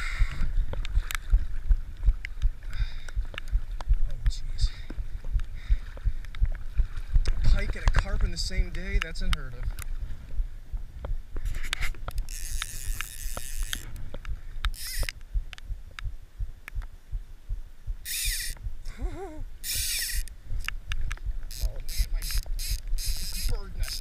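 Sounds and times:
low rumble of wind and water: 0.0s - 24.0s
fishing reel drag ratcheting: 11.4s - 14.0s, 14.7s - 15.2s, 18.0s - 18.6s, 19.6s - 20.8s, 21.5s - 24.0s.

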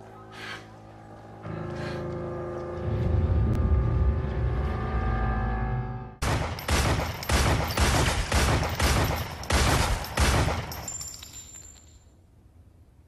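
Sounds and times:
pistol shots: 6.2s - 11.1s.

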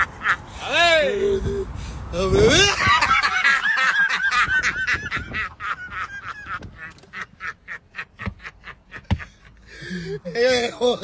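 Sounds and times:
man cackling laughter: 0.0s - 0.6s, 2.4s - 10.3s
breathy gasps: 9.6s - 10.2s.

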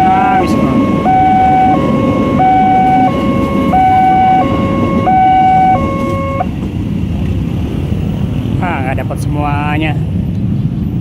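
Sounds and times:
two-tone crossing alarm: 0.0s - 6.6s
electric train rumbling: 0.0s - 11.0s.

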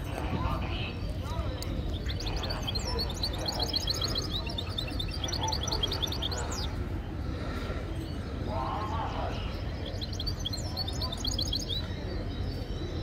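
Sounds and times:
songbird twittering: 0.9s - 6.8s, 9.4s - 13.0s.

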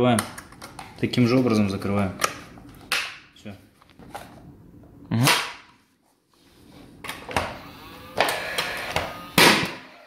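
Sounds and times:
nail gun whir: 7.3s - 10.0s
nail gun bang: 9.4s - 9.9s.

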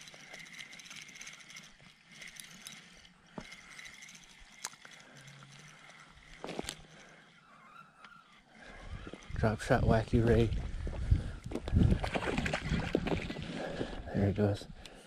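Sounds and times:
sharp reel clicks: 0.0s - 9.6s
fishing reel whirring and ticking: 0.0s - 15.0s.

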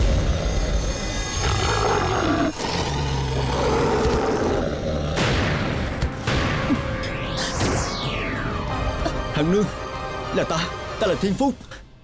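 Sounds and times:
beasts snarling and growling: 0.0s - 5.7s
sharp hit: 5.2s - 9.9s
whoosh: 6.9s - 9.1s.

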